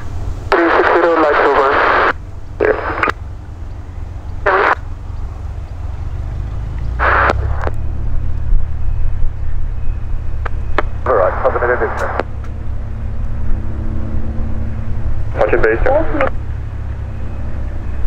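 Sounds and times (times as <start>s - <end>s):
propeller aircraft engine drone: 0.0s - 18.0s
radio static bursts: 0.5s - 3.2s, 4.4s - 5.0s, 7.0s - 7.8s, 10.4s - 12.4s, 15.3s - 16.4s.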